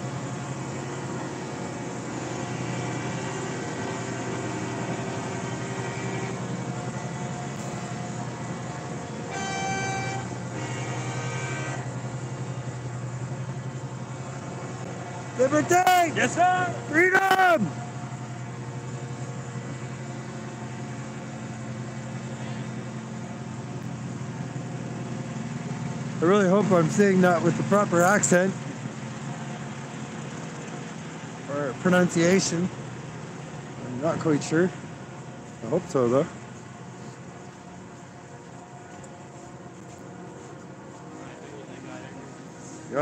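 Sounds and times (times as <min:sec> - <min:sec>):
truck engine idling: 0:00.0 - 0:43.0.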